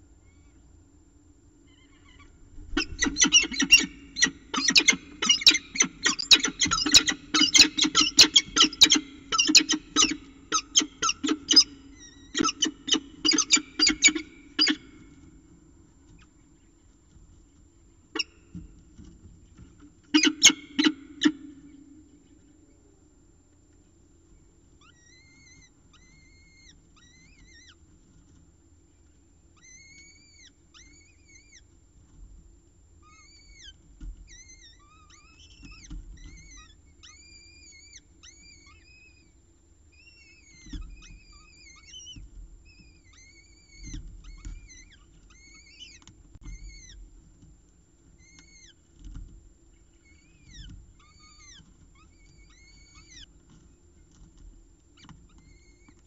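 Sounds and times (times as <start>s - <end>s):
falcon chicks begging cheeps: 1.7s - 15.4s, 18.1s - 18.6s, 20.1s - 22.5s, 40.0s - 47.0s, 49.8s - 53.4s.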